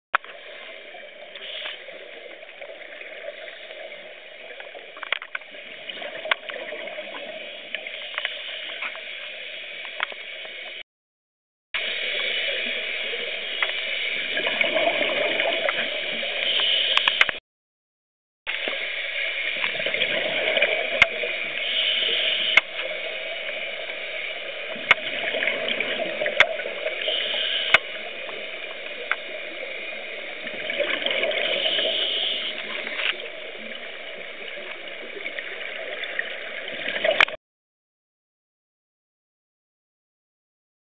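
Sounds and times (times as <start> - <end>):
underwater bubbles gurgling: 0.2 - 10.8, 11.8 - 17.4, 18.5 - 37.4
small clicks: 16.5 - 17.4.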